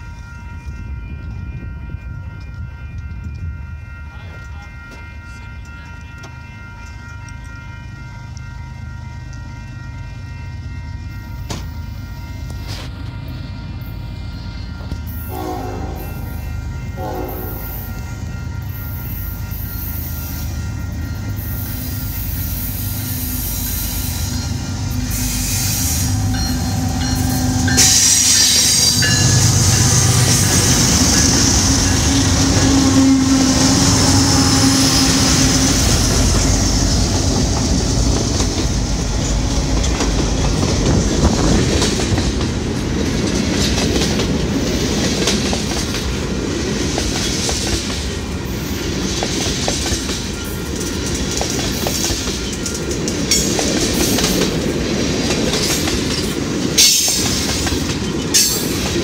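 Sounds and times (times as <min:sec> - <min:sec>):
diesel locomotives passing: 0:00.0 - 0:59.0
wheels clicking over rail joints: 0:34.6 - 0:59.0.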